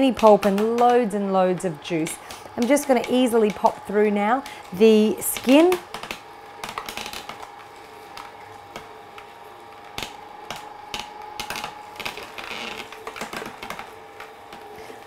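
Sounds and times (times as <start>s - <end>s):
juicer motor hum: 0.0s - 15.0s
cracks and clicks of crushing: 5.9s - 14.6s.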